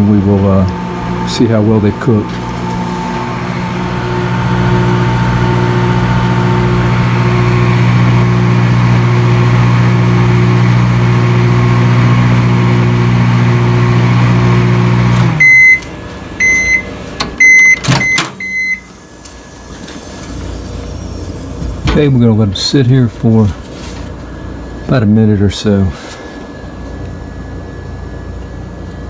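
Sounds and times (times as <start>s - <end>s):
microwave oven humming: 0.0s - 29.0s
short high beeps: 16.4s - 18.9s.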